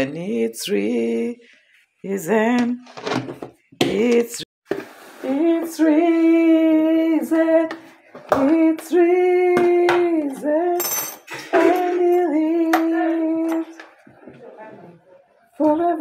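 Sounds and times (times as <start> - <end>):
woman singing unaccompanied: 0.0 - 2.9, 3.8 - 4.5, 5.2 - 13.9, 15.6 - 16.0.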